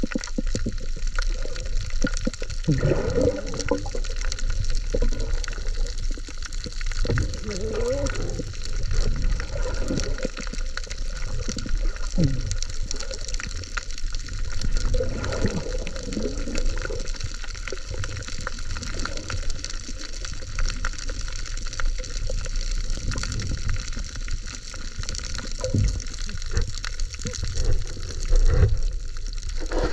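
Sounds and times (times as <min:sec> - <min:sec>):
low wavering gurgles: 0:00.0 - 0:29.9
underwater rushing wash: 0:00.0 - 0:29.9.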